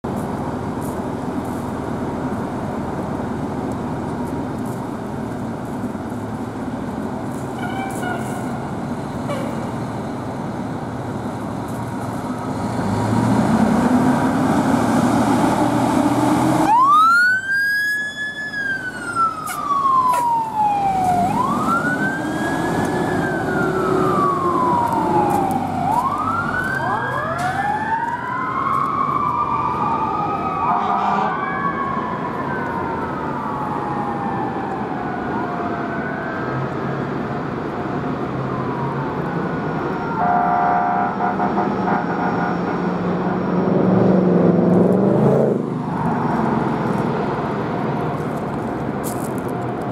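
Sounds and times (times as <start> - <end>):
wailing siren: 12.1 - 12.9, 13.5 - 43.9, 45.5 - 47.7
second siren tone: 16.6 - 32.7
fire engine diesel running: 18.4 - 30.2.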